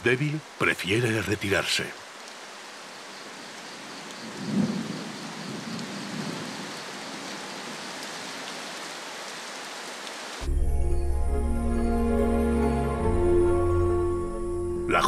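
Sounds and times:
heavy rain on river: 0.0s - 10.5s.

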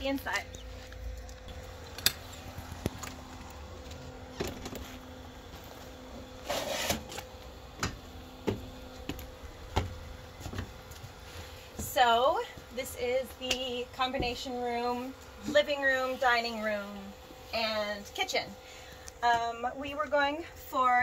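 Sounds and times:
faint steady hum: 0.0s - 21.0s
scraping rustle: 6.4s - 7.3s
footsteps: 7.7s - 16.4s.

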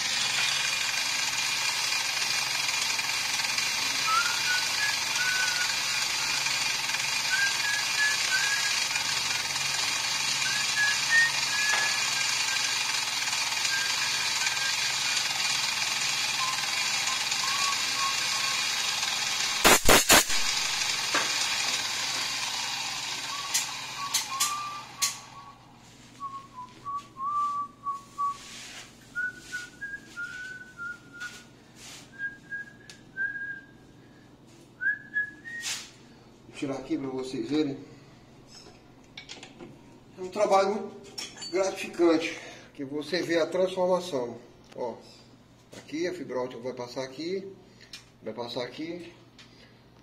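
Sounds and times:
drill press running: 0.0s - 25.8s
person whistling a tune: 4.0s - 5.8s, 7.3s - 8.9s, 10.4s - 12.8s, 13.7s - 14.8s, 16.4s - 18.6s, 23.3s - 25.6s, 26.2s - 31.5s, 32.1s - 33.9s, 34.8s - 35.9s
sharp clacks: 19.5s - 22.3s, 23.4s - 25.3s.

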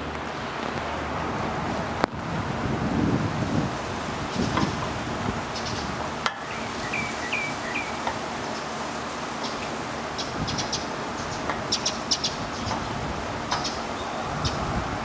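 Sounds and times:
outdoor hiss: 0.0s - 15.0s
small bird chirping: 5.5s - 8.8s, 9.4s - 14.7s.

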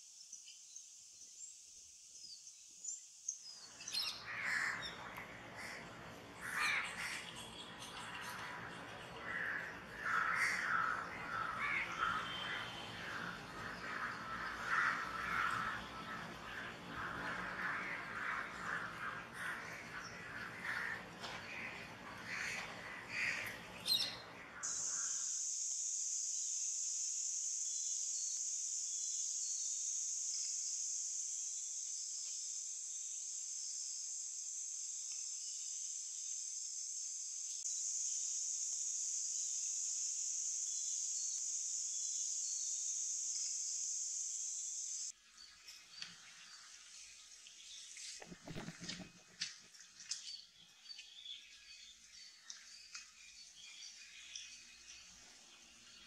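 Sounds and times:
faint chirps: 0.0s - 56.0s
bird calls: 3.3s - 25.2s, 47.5s - 56.0s
high-pitched insect drone: 24.6s - 45.2s.

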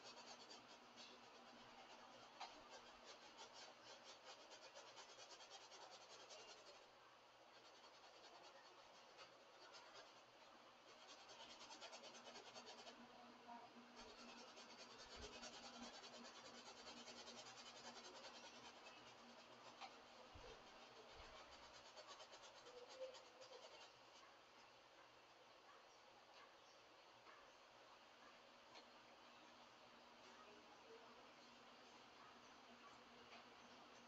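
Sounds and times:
paintbrush scratching on canvas: 0.0s - 6.9s, 7.5s - 13.0s, 13.9s - 24.3s.

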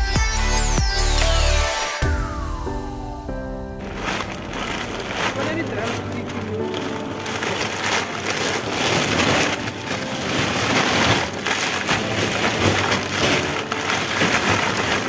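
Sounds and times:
plastic packaging crinkling: 3.8s - 15.0s.

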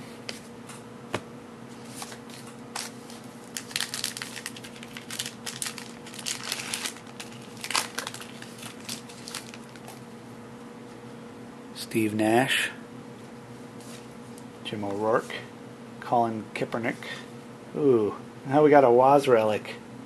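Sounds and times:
cards rustling and clicking: 2.0s - 10.0s.

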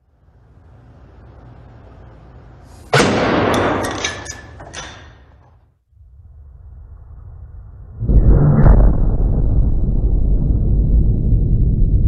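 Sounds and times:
dust explosion whoosh-bang: 7.0s - 12.0s.

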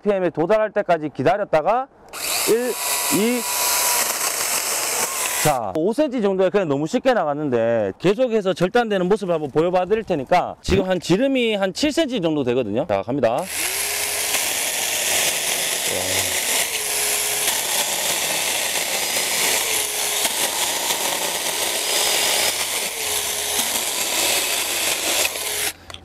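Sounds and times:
faint motor hum: 2.1s - 5.6s, 13.5s - 26.0s
chainsaw cutting through wood: 2.2s - 5.7s, 13.4s - 25.8s.

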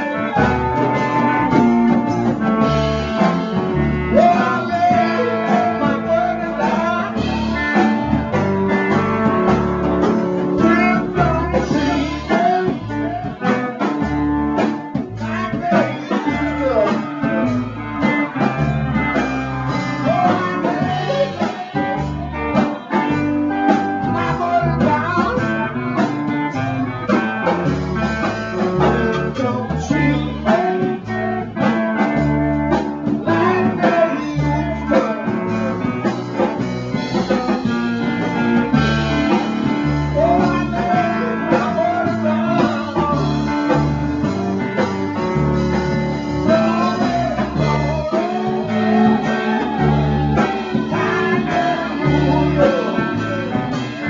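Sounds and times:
bass line: 0.0s - 54.0s
electric guitar: 0.0s - 54.0s
live blues band: 0.0s - 54.0s.

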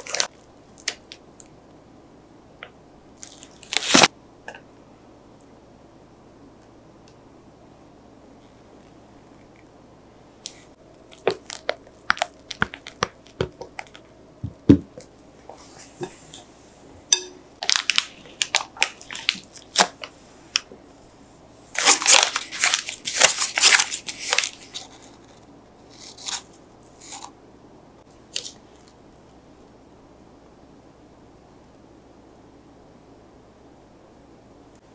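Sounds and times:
plastic bag crinkling: 0.0s - 1.2s, 3.2s - 4.1s, 11.1s - 14.1s, 17.6s - 20.7s, 21.8s - 25.3s
spatula tapping glass: 17.2s - 17.4s.

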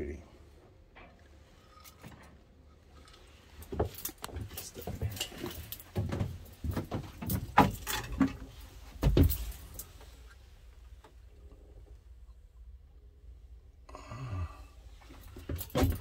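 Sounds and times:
knocks clicks and rustles: 0.9s - 10.3s, 15.0s - 16.0s.

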